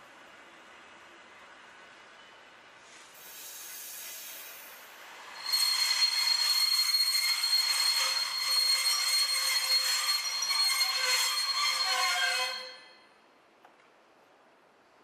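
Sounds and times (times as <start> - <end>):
train wheels squealing on rails: 2.0 - 13.1.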